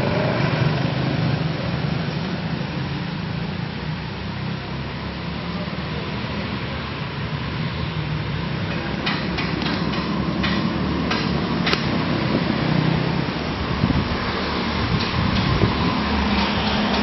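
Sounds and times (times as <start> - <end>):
go-kart engines: 0.0 - 17.0
sharp knocks: 9.0 - 12.1.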